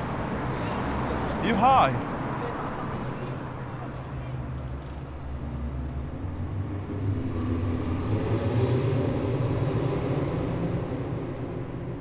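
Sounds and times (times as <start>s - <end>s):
low noisy rumble: 4.3s - 12.0s.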